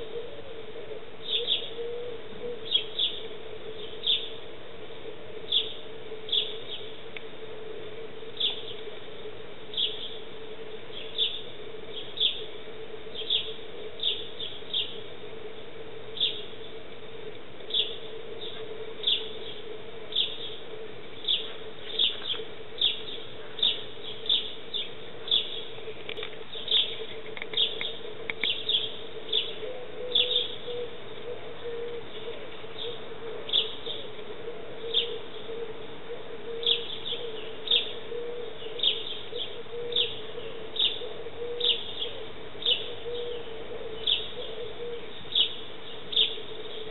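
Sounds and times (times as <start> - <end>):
faint steady hum: 0.0 - 46.9
sparrow chirping: 1.2 - 2.0, 2.6 - 4.4, 5.5 - 7.0, 9.7 - 10.3, 10.9 - 15.1, 17.7 - 35.6, 36.6 - 46.9.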